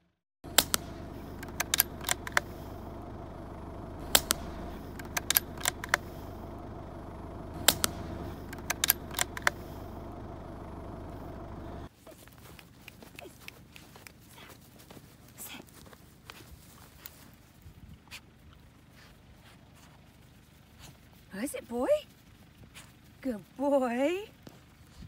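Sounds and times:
sharp clicks: 0:00.4 - 0:11.9
faint rustling in grass: 0:12.0 - 0:23.7.

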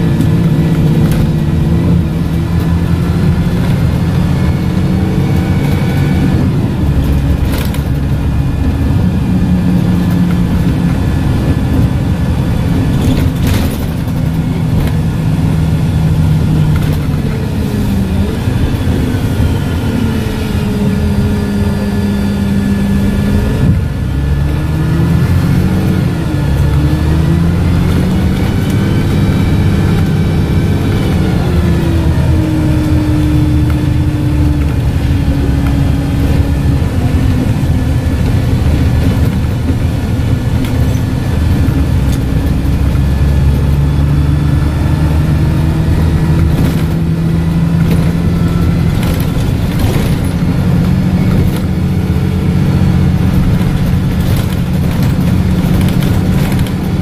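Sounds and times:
bus engine: 0:00.0 - 0:57.0.

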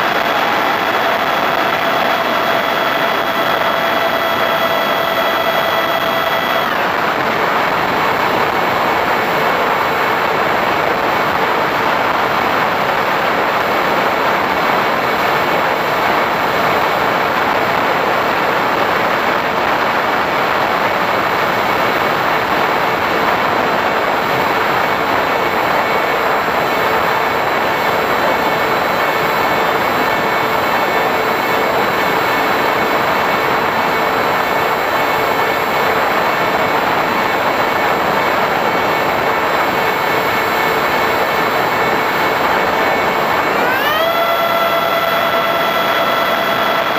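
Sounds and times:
model plane motor and airflow: 0:00.0 - 0:11.6, 0:24.1 - 0:46.9.

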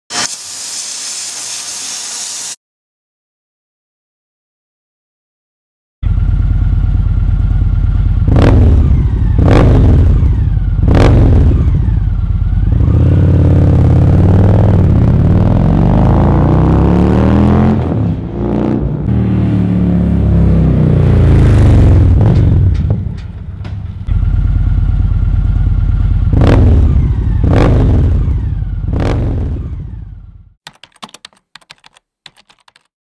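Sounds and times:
motorcycle engine revving: 0:06.0 - 0:30.6.

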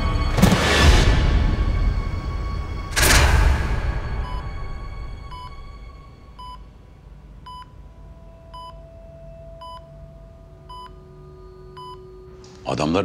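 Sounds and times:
low hum: 0:00.0 - 0:12.7
patient monitor beeping: 0:04.1 - 0:06.7, 0:07.4 - 0:12.8.

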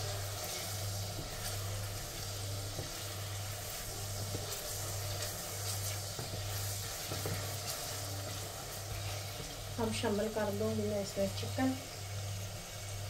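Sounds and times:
wooden spoon stirring: 0:00.0 - 0:11.4
onions sizzling in a pot: 0:00.0 - 0:13.0.

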